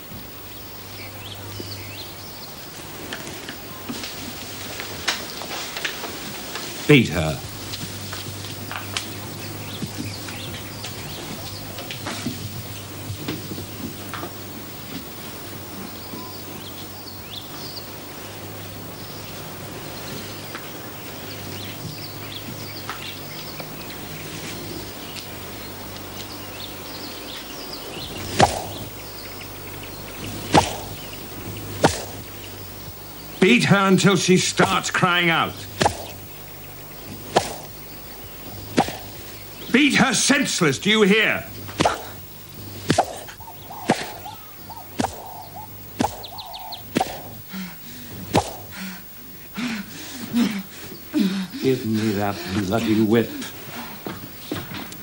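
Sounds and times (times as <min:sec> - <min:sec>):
faint birds: 0:00.0 - 0:55.0
faint insects: 0:00.0 - 0:55.0
sharp whip strokes: 0:28.3 - 0:28.8, 0:30.5 - 0:31.0, 0:31.8 - 0:32.2, 0:35.8 - 0:36.2, 0:37.3 - 0:37.7, 0:38.8 - 0:39.1, 0:41.8 - 0:42.2, 0:42.9 - 0:44.2, 0:45.0 - 0:45.3, 0:46.0 - 0:46.3, 0:46.9 - 0:47.4, 0:48.3 - 0:48.7.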